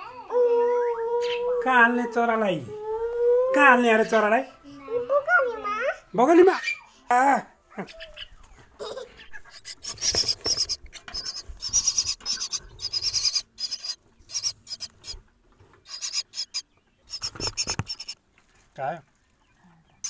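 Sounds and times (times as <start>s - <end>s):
fledglings begging calls: 7.8s - 18.2s.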